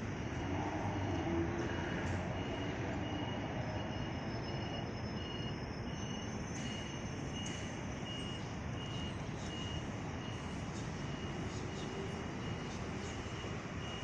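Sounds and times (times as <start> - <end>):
city street traffic: 0.0 - 14.0.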